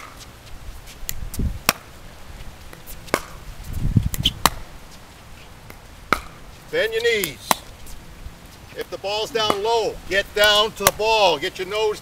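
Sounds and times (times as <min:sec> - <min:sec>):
paddle striking plastic ball: 0:05.7 - 0:06.4.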